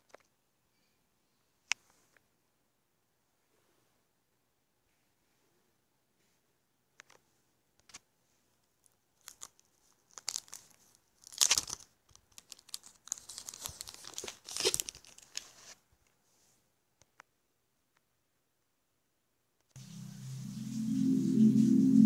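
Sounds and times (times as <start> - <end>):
plastic wrapping crinkling and tearing: 9.2 - 15.7.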